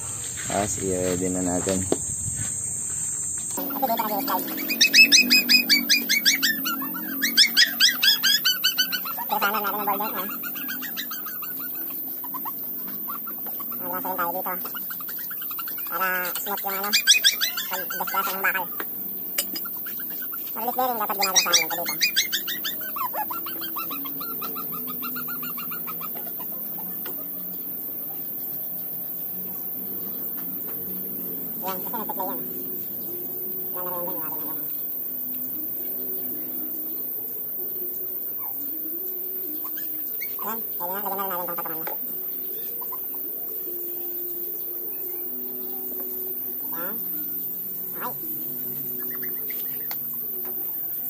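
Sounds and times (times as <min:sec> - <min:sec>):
bird chirping sharply: 0:03.6 - 0:12.5
lower wavering bird call: 0:03.6 - 0:18.8, 0:19.4 - 0:27.4, 0:35.5 - 0:51.0.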